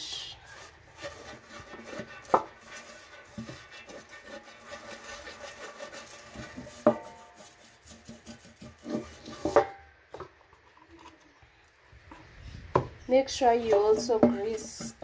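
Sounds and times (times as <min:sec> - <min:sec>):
pastry brush scraping a metal tin: 0:00.0 - 0:09.8, 0:13.3 - 0:15.0.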